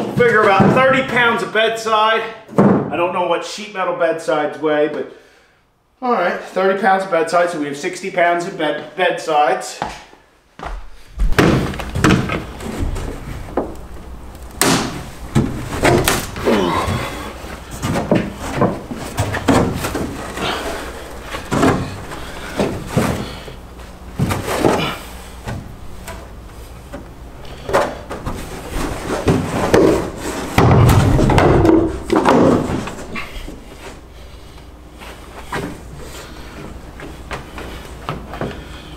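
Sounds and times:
hollow thumps and knocks: 10.6 - 13.8, 17.7 - 23.3, 27.7 - 33.2.

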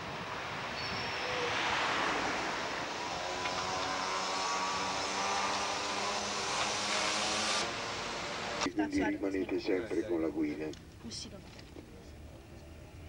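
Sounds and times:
vehicle passing: 0.0 - 8.7
engine hum: 0.0 - 8.8.

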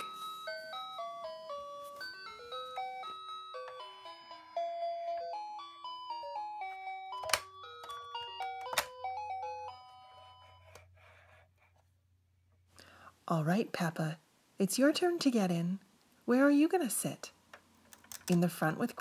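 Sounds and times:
electronic toy tune beeping: 0.0 - 10.8.

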